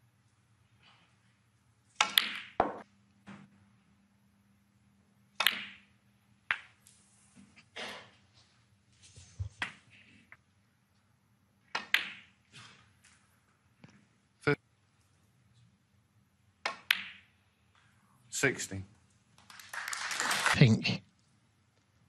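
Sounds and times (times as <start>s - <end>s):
cue striking ball: 2.0s - 2.8s
snooker balls clicking together: 2.0s - 2.8s, 5.4s - 5.9s, 6.5s - 6.8s, 11.7s - 12.4s, 16.6s - 17.3s.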